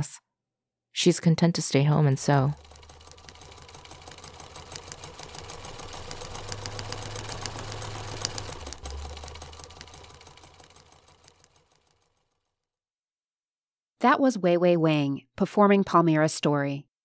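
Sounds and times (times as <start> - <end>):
sewing machine running: 2.1 - 12.4.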